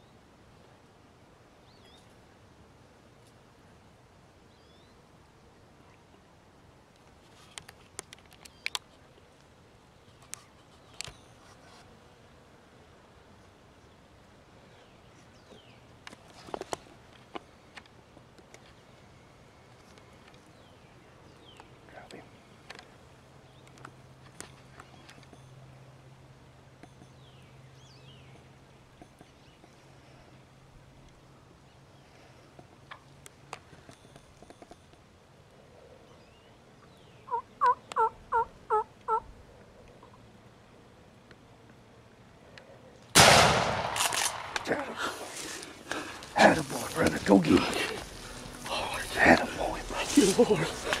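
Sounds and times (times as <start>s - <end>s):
sharp clicks and snaps: 7.0s - 9.0s
turkey yelping: 37.3s - 39.3s.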